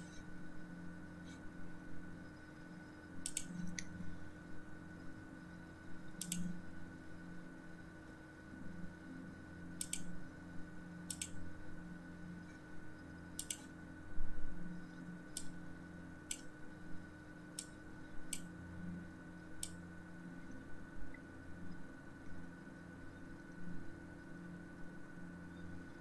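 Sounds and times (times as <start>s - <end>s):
steady low hum: 0.0s - 26.0s
computer mouse clicks: 3.2s - 4.0s, 6.2s - 6.5s, 9.8s - 10.1s, 11.1s - 11.4s, 13.4s - 13.7s, 15.3s - 15.6s, 16.3s - 16.5s, 17.5s - 18.5s, 19.6s - 19.8s.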